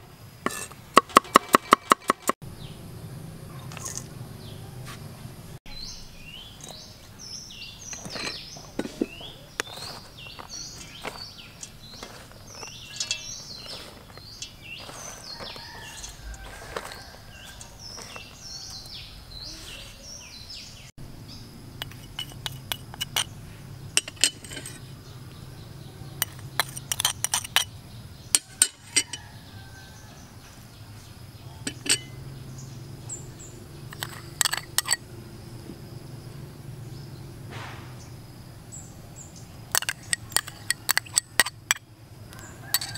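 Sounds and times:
steady background noise: 0:00.0 - 0:42.9
utensils clinking on metal bowl: 0:00.5 - 0:02.4, 0:07.8 - 0:18.9, 0:21.8 - 0:23.3, 0:24.0 - 0:24.8, 0:26.2 - 0:27.7, 0:28.3 - 0:29.2, 0:31.6 - 0:32.2, 0:33.9 - 0:35.0, 0:39.7 - 0:41.8, 0:42.6 - 0:42.9
birds chirping: 0:00.8 - 0:42.9.

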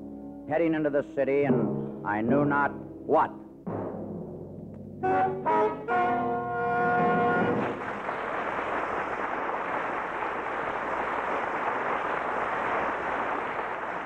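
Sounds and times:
record surface noise hiss: 0:00.0 - 0:14.0
orchestral brass and timpani chord: 0:03.7 - 0:08.2.

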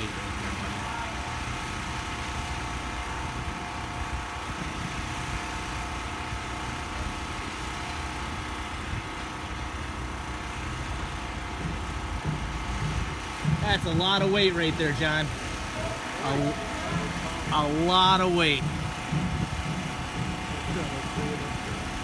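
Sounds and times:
crane engine low rumble: 0:00.0 - 0:22.0.

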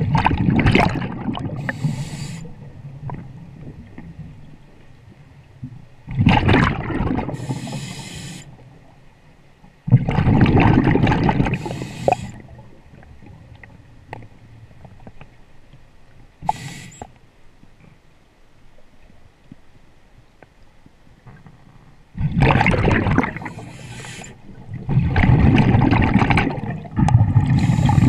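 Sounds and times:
underwater exhaled bubbles: 0:00.0 - 0:04.6, 0:06.1 - 0:08.2, 0:09.8 - 0:14.2, 0:22.2 - 0:28.0
regulator hiss: 0:01.6 - 0:02.5, 0:07.4 - 0:08.6, 0:11.6 - 0:12.4, 0:16.4 - 0:17.1, 0:23.5 - 0:24.4.

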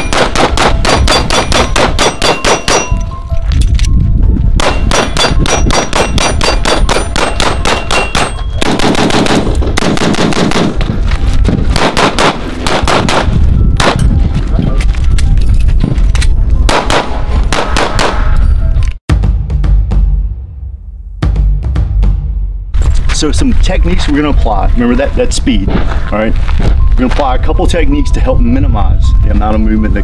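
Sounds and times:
rapid pistol shots: 0:00.0 - 0:02.9, 0:04.6 - 0:10.8, 0:11.7 - 0:14.0, 0:16.7 - 0:18.3
steel targets ringing: 0:00.0 - 0:03.3, 0:04.6 - 0:08.8.

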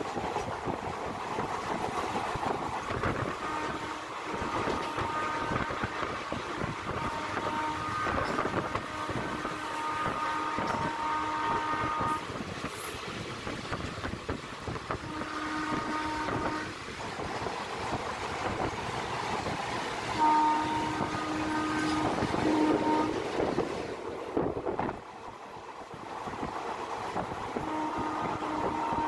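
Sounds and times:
goods train passing: 0:00.0 - 0:29.0
train rumbling and clattering: 0:00.0 - 0:29.0
multi-tone locomotive horn: 0:02.4 - 0:13.0, 0:14.8 - 0:17.3, 0:20.1 - 0:23.9, 0:27.1 - 0:29.0.

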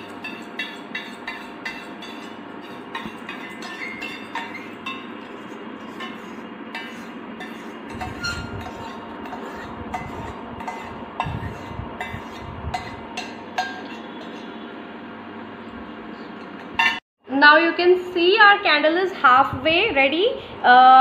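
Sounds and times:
metal spoon scraping a metal pan: 0:00.0 - 0:14.7.

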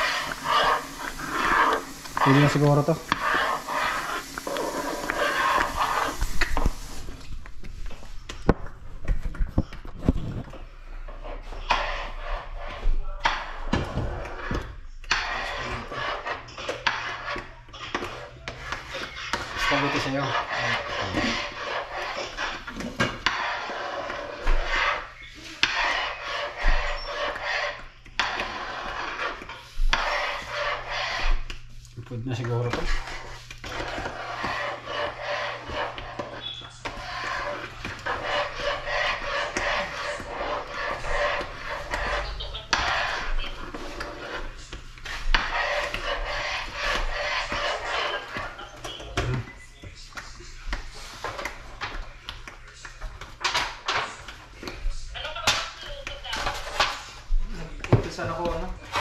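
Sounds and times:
spoon scraping metal pan: 0:00.0 - 0:06.8, 0:14.2 - 0:31.4, 0:32.4 - 0:49.2.

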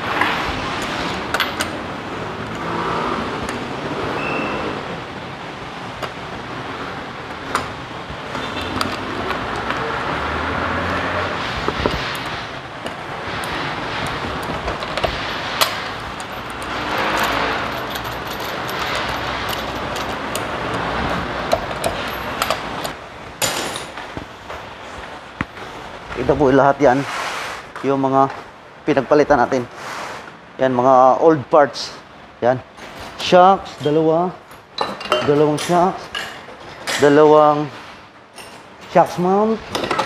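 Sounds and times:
road traffic hum: 0:00.0 - 0:40.0.

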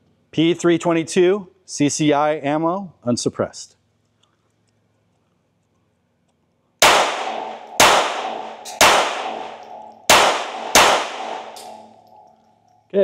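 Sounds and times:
pistol shots with ringing decay: 0:06.8 - 0:12.2.

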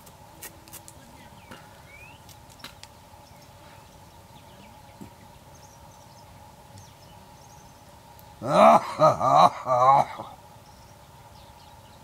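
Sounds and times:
steady low hum: 0:00.0 - 0:12.0
faint bird chirps: 0:01.0 - 0:08.0, 0:10.6 - 0:12.0.

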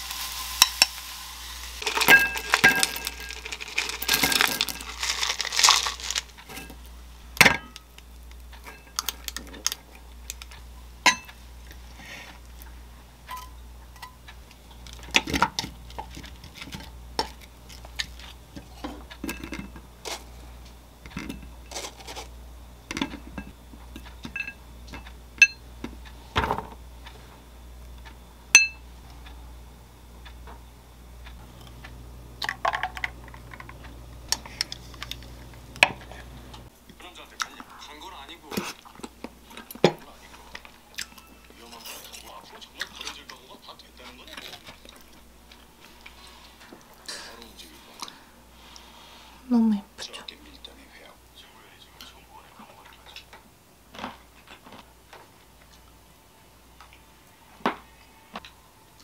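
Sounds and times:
dishes clinking against glass bowl: 0:01.8 - 0:03.4, 0:07.4 - 0:07.8, 0:11.1 - 0:11.4, 0:18.6 - 0:19.8, 0:24.2 - 0:25.6, 0:28.6 - 0:28.8
liquid pouring into cup: 0:01.8 - 0:06.3.

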